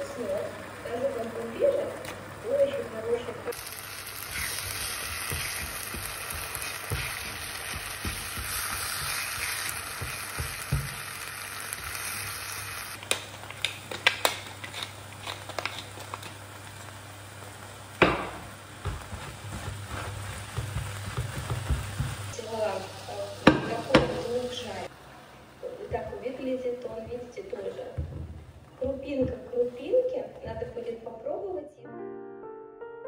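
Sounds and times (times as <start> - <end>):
eggs sizzling in a frying pan: 0.0 - 29.2
wooden spatula stirring and scraping: 3.6 - 12.2, 18.8 - 22.4.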